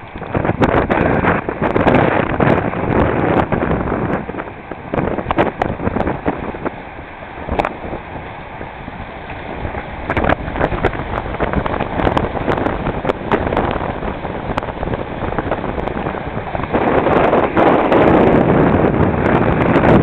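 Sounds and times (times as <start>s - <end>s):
water rushing along hull: 0.0s - 20.0s
wind buffeting microphone: 0.0s - 20.0s
short crackles: 7.4s - 19.4s.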